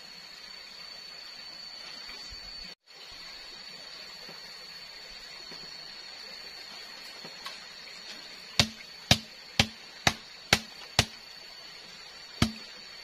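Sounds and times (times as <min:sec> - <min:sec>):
blade chopping palm fronds: 0:08.6 - 0:11.2, 0:12.4 - 0:12.7.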